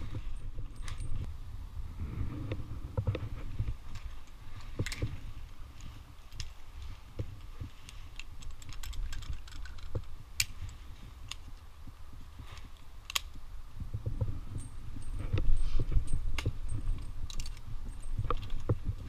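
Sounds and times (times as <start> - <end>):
carabiners clinking: 0.0 - 1.3, 3.8 - 11.6, 14.5 - 19.0
steady low rumble: 0.0 - 19.0.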